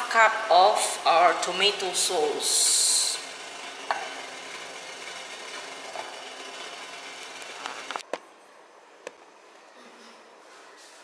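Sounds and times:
machine humming: 0.2s - 8.0s.

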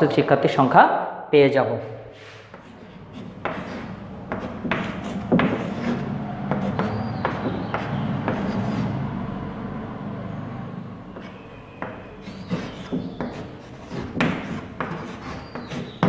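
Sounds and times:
chalk tapping and scraping: 2.2s - 9.0s, 11.1s - 16.0s
steady low hum: 2.5s - 11.5s.

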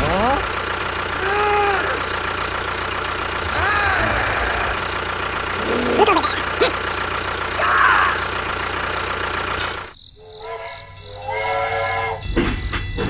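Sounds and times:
steady motor hum: 0.1s - 9.9s
steam train whistle blasts: 10.2s - 12.4s.

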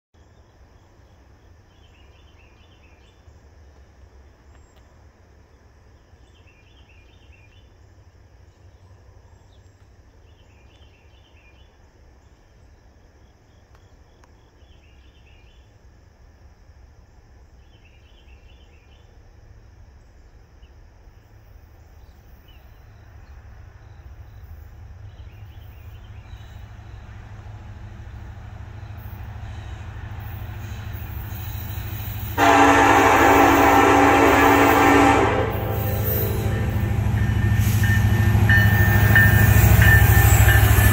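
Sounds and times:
approaching freight train rumble: 14.6s - 40.9s.

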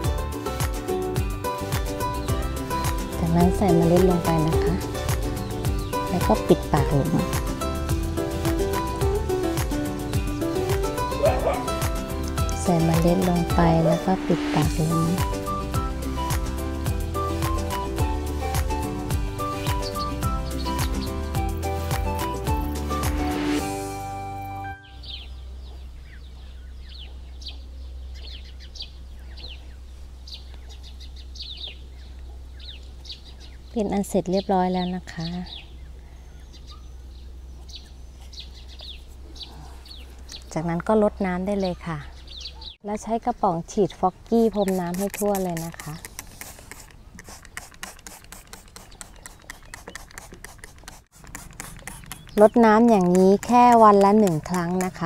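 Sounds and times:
small birds chirping: 0.0s - 23.6s, 24.6s - 55.0s
spray bottle squirts: 44.4s - 55.0s.

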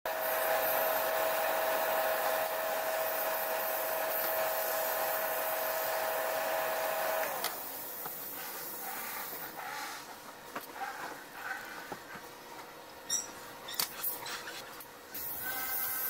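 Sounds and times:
fan blowing air with hum: 0.1s - 16.0s.

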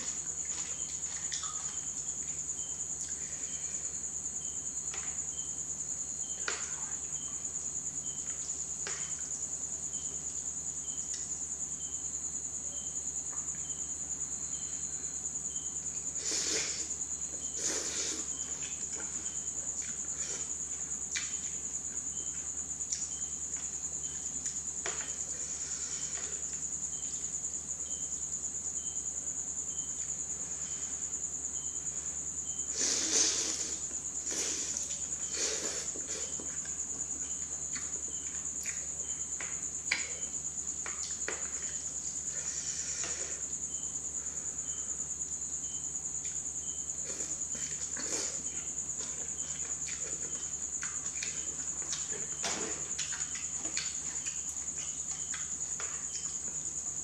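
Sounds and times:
chewing: 16.2s - 23.8s, 32.8s - 43.4s, 47.0s - 57.0s
noodle slurps: 32.7s - 36.4s.

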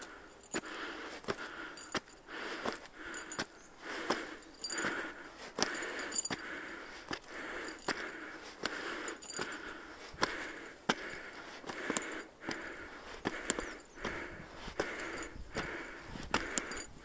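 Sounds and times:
footsteps on stone steps: 0.0s - 17.0s.

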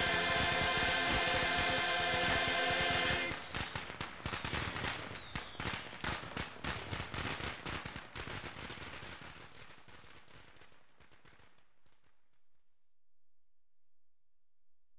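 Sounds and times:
firecrackers popping: 0.0s - 12.2s.

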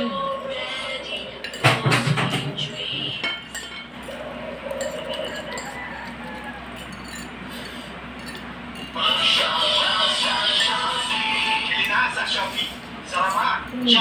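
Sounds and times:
forks clinking on plates: 3.1s - 12.3s, 13.1s - 14.0s.

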